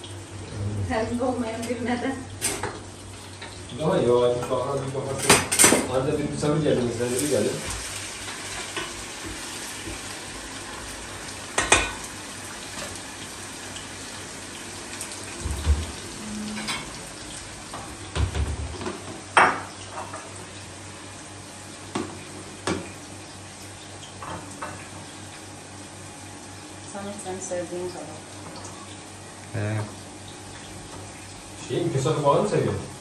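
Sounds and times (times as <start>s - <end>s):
pots and dishes clinking: 2.4s - 2.8s, 4.4s - 6.0s, 11.5s - 12.1s, 15.4s - 17.0s, 17.7s - 20.4s.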